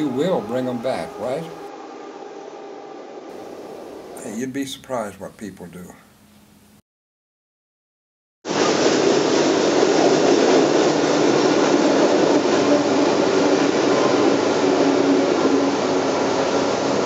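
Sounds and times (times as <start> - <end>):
freight train rumbling over bridge: 0.0 - 4.5, 8.5 - 17.0.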